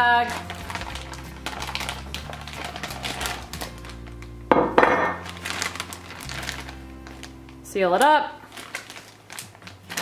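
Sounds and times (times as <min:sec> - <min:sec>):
plastic bag rustling: 0:00.0 - 0:10.0
soft background music: 0:00.0 - 0:10.0
glass dish knocking on wood: 0:04.5 - 0:05.2.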